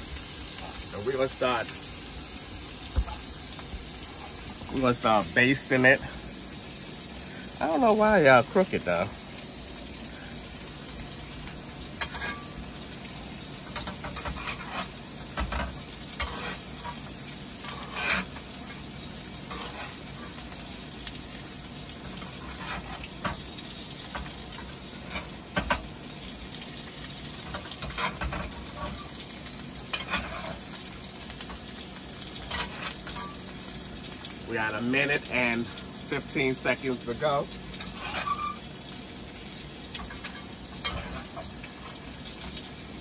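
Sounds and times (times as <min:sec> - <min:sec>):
steak sizzling in a frying pan: 0:00.0 - 0:43.0
utensil scraping a pan: 0:12.0 - 0:12.6, 0:13.7 - 0:18.5, 0:19.4 - 0:20.5, 0:22.0 - 0:23.4, 0:27.4 - 0:29.3, 0:29.9 - 0:30.8, 0:37.8 - 0:38.7, 0:39.9 - 0:42.6.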